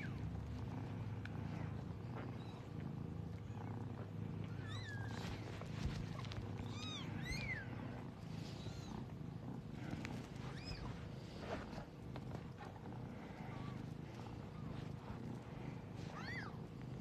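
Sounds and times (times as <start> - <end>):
cat purring: 0.0 - 17.0.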